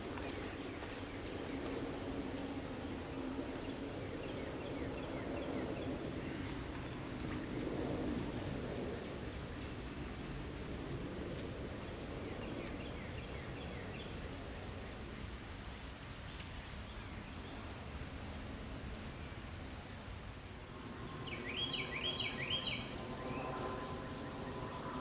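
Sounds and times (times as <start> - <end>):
birds chirping: 20.3 - 25.0.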